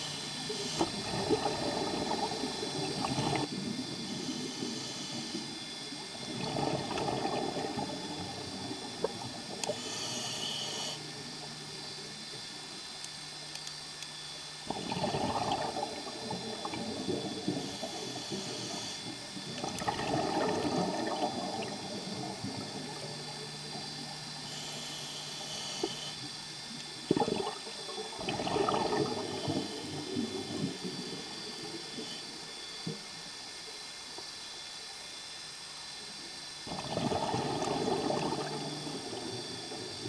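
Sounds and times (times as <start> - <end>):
underwater exhaled bubbling: 0.4 - 11.3, 14.7 - 24.5, 26.9 - 32.8, 36.7 - 40.0.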